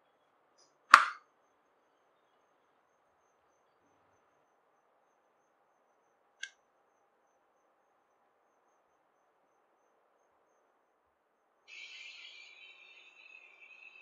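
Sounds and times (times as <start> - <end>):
faint high insect chirp: 0.0 - 14.0
sharp click: 0.9 - 1.2
loud hiss: 11.7 - 14.0.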